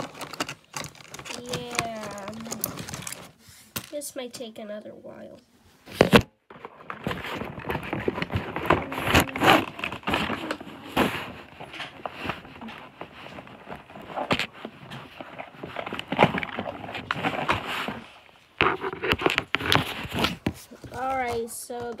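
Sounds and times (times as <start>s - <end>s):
toy packaging crackling: 0.0s - 4.0s, 6.5s - 14.5s.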